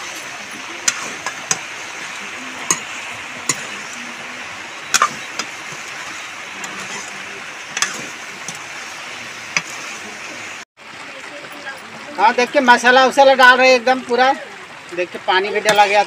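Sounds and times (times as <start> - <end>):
steady hiss from pan: 0.0 - 10.6, 14.9 - 16.0.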